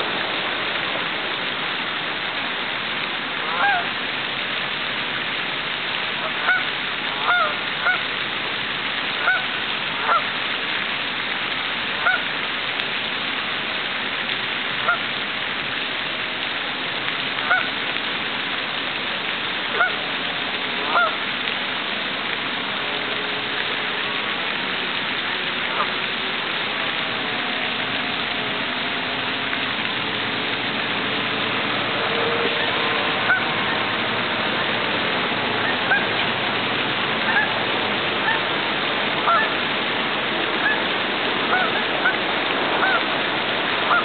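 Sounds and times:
fountain spray hissing: 0.0 - 44.0
geese honking: 3.5 - 3.9, 6.2 - 8.0, 9.2 - 9.4, 20.9 - 21.2, 33.2 - 33.5, 35.7 - 36.1, 37.3 - 37.5, 39.2 - 39.5, 41.5 - 42.2, 42.8 - 43.0.

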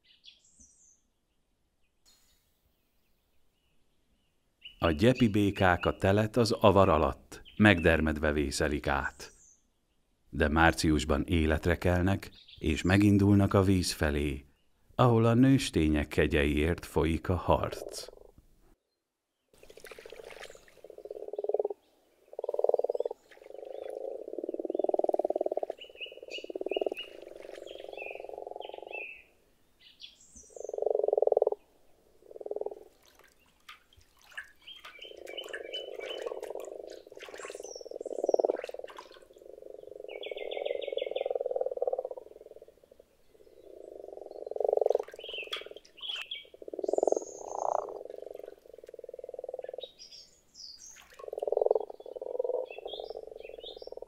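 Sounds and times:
frogs croaking: 17.4 - 18.4, 19.7 - 29.4, 30.0 - 33.4, 34.4 - 54.0
frog trills: 20.8 - 29.2, 30.6 - 31.6, 32.2 - 32.9, 35.0 - 37.2, 37.8 - 50.0, 51.2 - 54.0.

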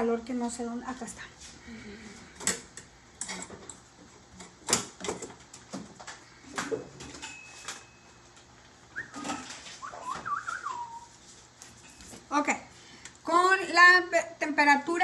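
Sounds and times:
short falling whistle: 9.8 - 11.1.

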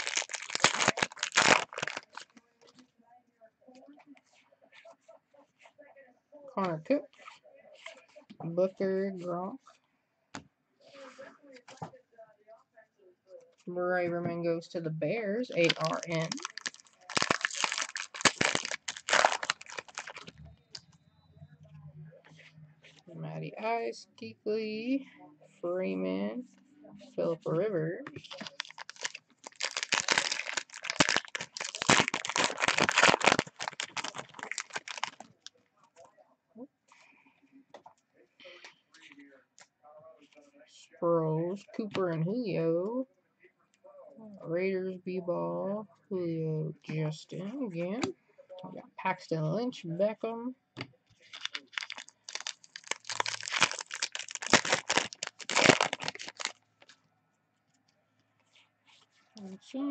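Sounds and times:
foil wrapper crinkling and tearing: 0.0 - 2.4, 15.5 - 20.4, 28.1 - 35.5, 51.2 - 57.0.

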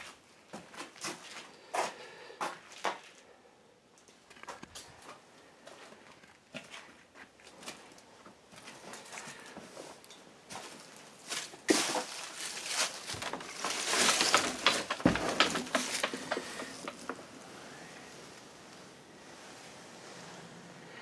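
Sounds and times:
rustling: 8.6 - 21.0
scuffing footsteps: 10.5 - 17.3.

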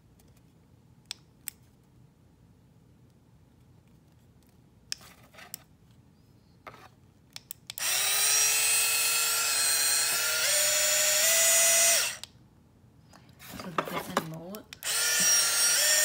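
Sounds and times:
hand mixer motor whirring: 7.8 - 12.2, 14.8 - 16.0.

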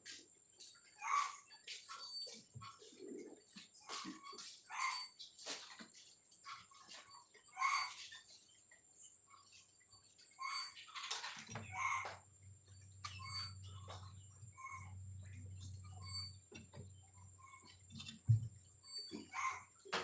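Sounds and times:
steady high-pitched whine: 0.0 - 20.0
low hum: 8.2 - 20.0.

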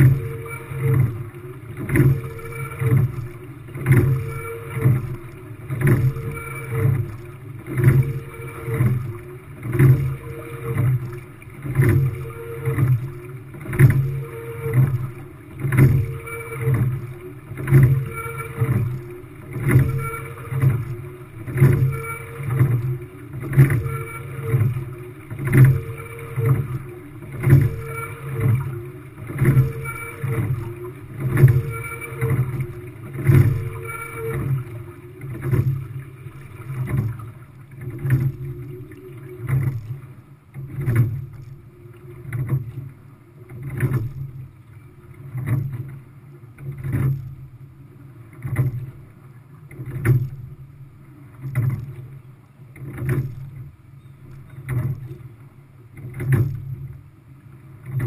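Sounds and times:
water rushing along hull: 0.0 - 58.0.

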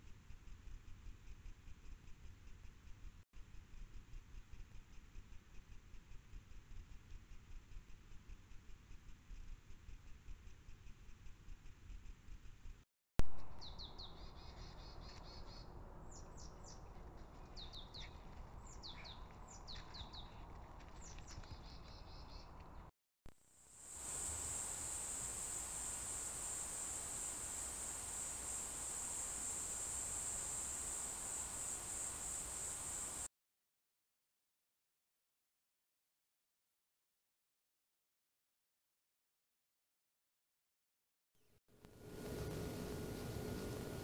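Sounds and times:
small birds chirping: 13.6 - 22.9, 24.0 - 33.3
high-pitched insect chorus: 23.7 - 33.3.

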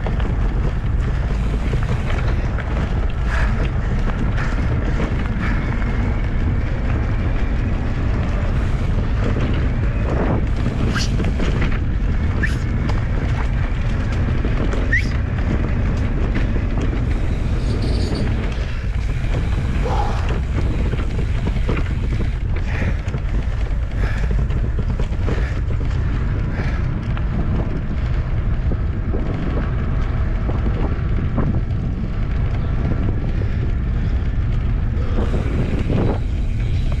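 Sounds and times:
bike knocking and rattling: 0.0 - 37.0
knobby tyre on dirt: 0.0 - 37.0
wind buffeting microphone: 0.0 - 37.0.

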